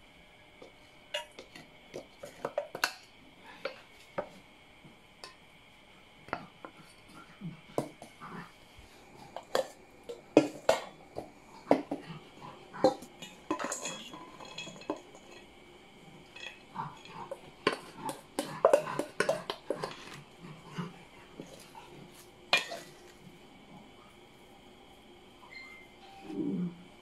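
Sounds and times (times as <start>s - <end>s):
steel bowls clinking: 1.1s - 3.8s, 9.2s - 23.2s.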